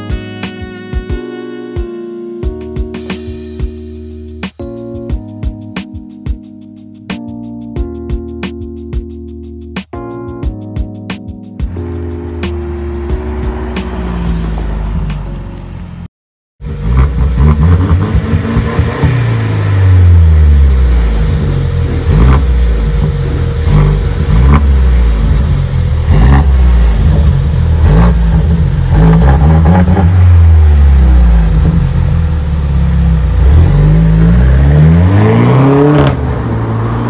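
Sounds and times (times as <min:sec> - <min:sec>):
car engine revving: 0:11.7 - 0:37.0.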